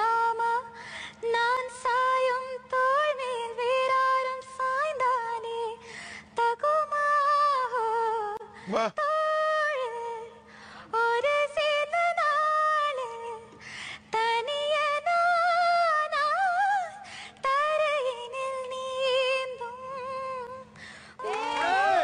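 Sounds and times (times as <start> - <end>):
woman singing: 0.0 - 22.0
singer breathing: 0.7 - 1.2, 5.8 - 6.4, 10.4 - 11.0, 13.5 - 14.2, 17.0 - 17.4, 20.7 - 21.2.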